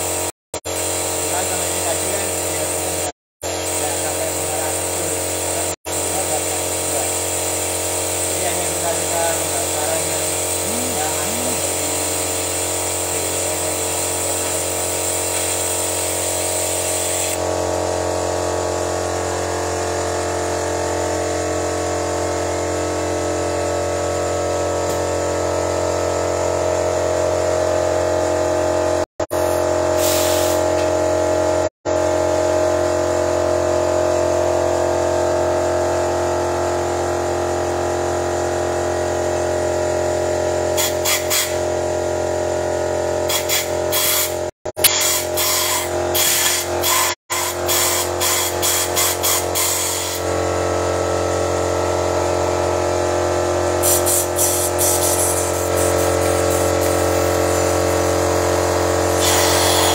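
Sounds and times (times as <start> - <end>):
car engine humming: 8.4 - 14.9.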